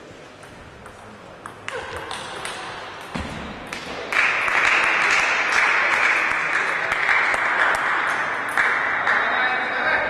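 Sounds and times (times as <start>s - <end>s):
applause: 4.1s - 9.5s.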